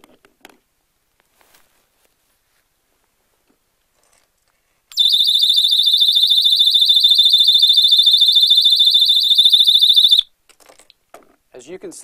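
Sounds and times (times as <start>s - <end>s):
shrill warbling electronic alarm: 5.0s - 10.3s.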